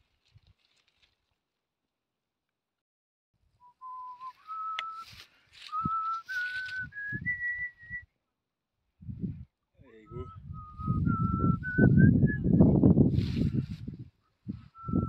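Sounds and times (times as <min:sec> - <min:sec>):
person whistling held notes: 0:03.6 - 0:08.1, 0:10.1 - 0:12.8, 0:14.5 - 0:15.0.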